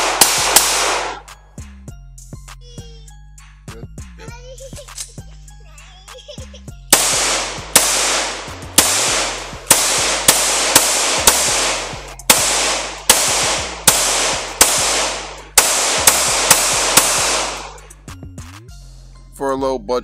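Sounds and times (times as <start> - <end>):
pistol shots with echo: 0.0 - 1.3, 6.9 - 18.0.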